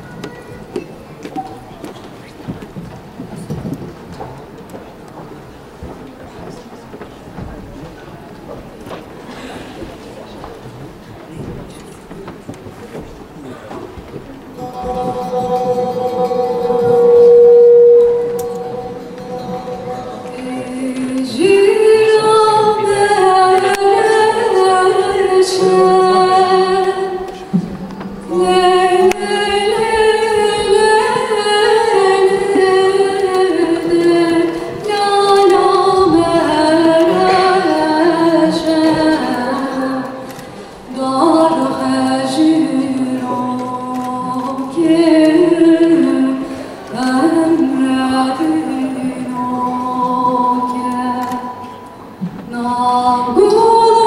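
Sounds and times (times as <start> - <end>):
woman singing slowly: 14.6 - 27.5, 28.2 - 51.9, 52.5 - 54.0.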